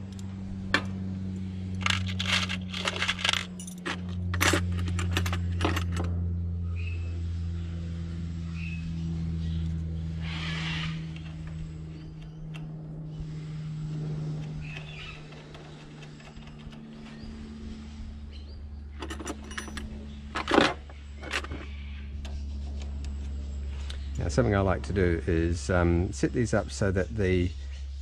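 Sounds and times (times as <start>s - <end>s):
low background hum: 0.0s - 28.0s
small metal parts clinking: 1.7s - 6.1s, 19.0s - 21.7s.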